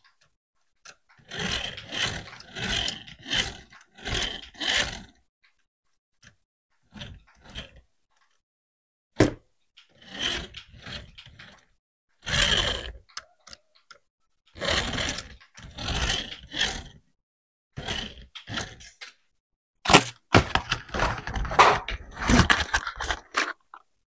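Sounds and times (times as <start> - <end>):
plastic clicks: 12.8 - 15.7.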